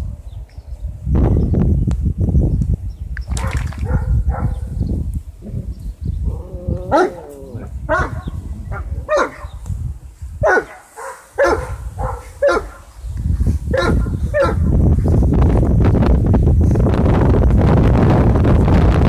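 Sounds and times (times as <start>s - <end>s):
wind rumbling on microphone: 0.0s - 19.0s
dogs barking: 3.4s - 4.8s, 6.8s - 9.6s, 10.4s - 12.9s, 13.7s - 14.7s.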